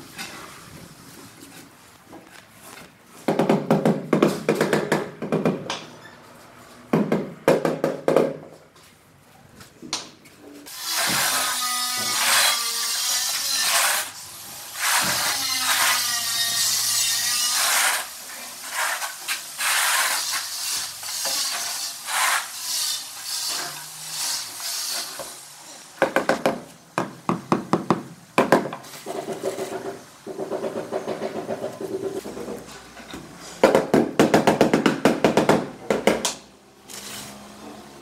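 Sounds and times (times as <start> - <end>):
trowel scraping mortar on concrete: 10.7 - 25.4, 36.9 - 37.4.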